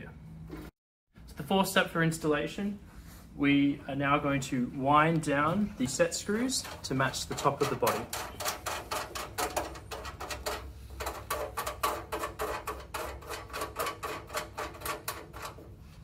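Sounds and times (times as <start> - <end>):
set screw clicking in sheet metal: 6.6 - 15.7.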